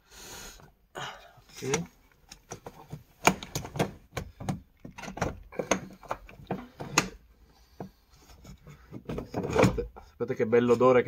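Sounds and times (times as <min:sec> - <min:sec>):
plastic clicks and knocks: 0:01.6 - 0:07.2.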